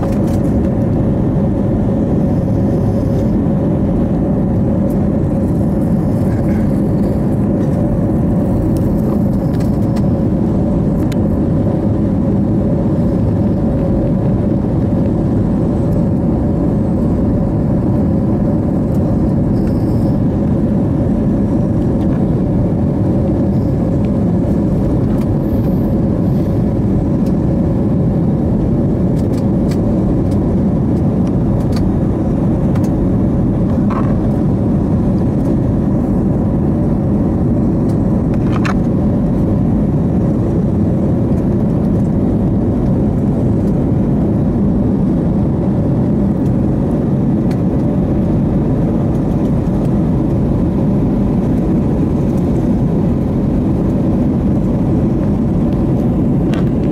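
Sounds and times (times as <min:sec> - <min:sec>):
jet engine and airflow rumble: 0:00.0 - 0:56.9
steady cabin hum: 0:00.0 - 0:56.9.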